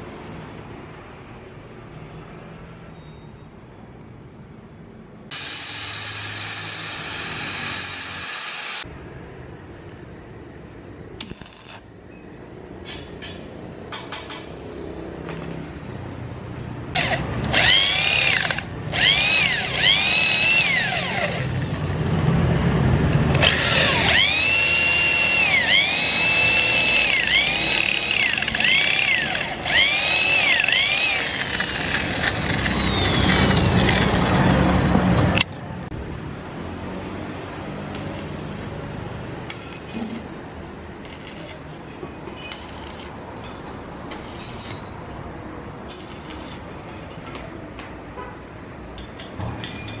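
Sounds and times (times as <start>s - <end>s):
power tool motor whining: 5.3s - 8.8s, 17.0s - 21.8s, 23.4s - 34.4s.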